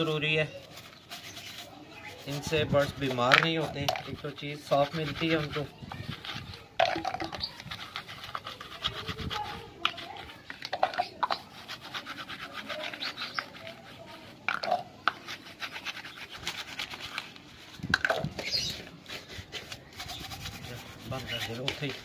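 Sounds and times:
brush scrubbing plastic cups: 0.0 - 22.0
plastic handling sounds: 16.8 - 22.0.

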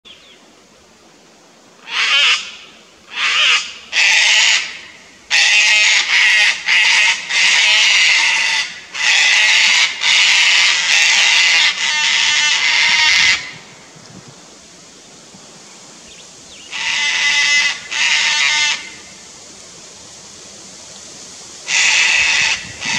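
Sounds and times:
cockatoos screeching: 3.1 - 13.7, 16.6 - 19.2, 21.7 - 22.9.

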